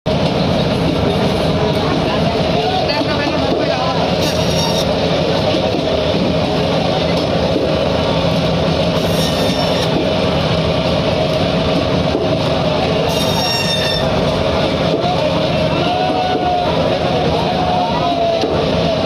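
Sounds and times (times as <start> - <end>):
band saw cutting fish: 4.1 - 5.0, 8.9 - 10.0, 13.0 - 14.2
shrill metallic blade squeal: 4.2 - 4.9, 9.0 - 9.9, 13.1 - 14.1.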